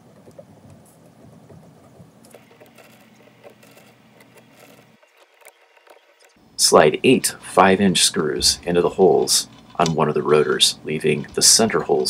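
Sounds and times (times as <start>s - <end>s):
soft handling clicks and rubbing: 0.1s - 6.4s, 8.9s - 12.0s.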